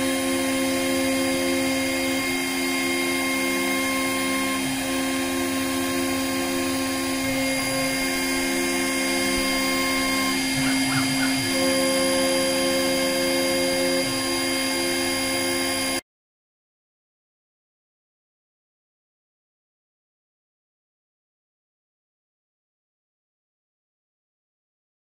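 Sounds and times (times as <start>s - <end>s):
milling machine whine: 0.0s - 16.0s.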